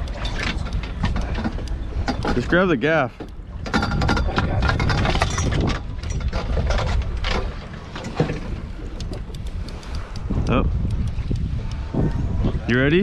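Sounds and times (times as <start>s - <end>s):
fishing gear clicks and knocks: 0.0s - 10.3s
wind rumbling on microphone: 0.0s - 13.0s.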